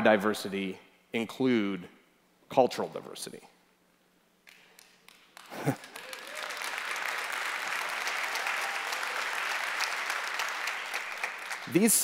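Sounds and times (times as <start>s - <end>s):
audience applause: 4.5s - 12.0s.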